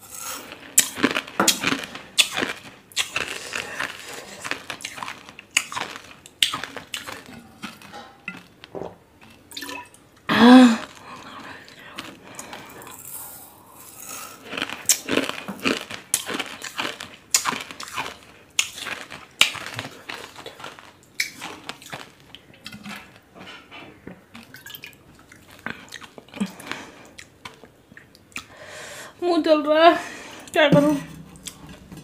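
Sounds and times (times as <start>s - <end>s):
close chewing mouth smacks: 24.3s - 28.6s.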